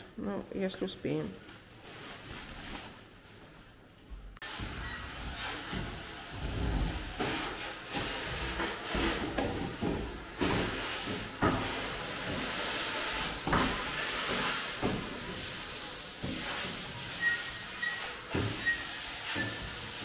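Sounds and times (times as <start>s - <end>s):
vacuum cleaner sucking sand: 4.4s - 20.0s.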